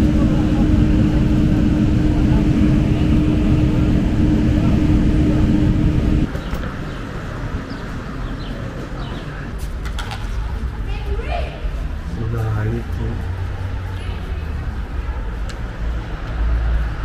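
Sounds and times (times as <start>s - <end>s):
airliner cabin engine noise: 0.0s - 10.7s
outdoor ambience: 0.0s - 17.0s.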